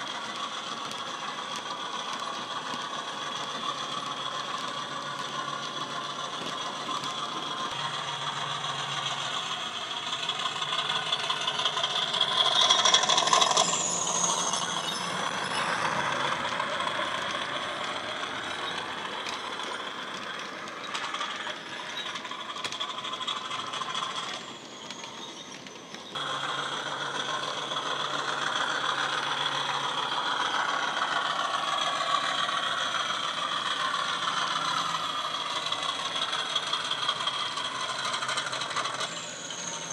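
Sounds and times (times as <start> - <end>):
model locomotive diesel engine sound: 0.0 - 39.9
model wagon wheels clattering: 0.0 - 39.9.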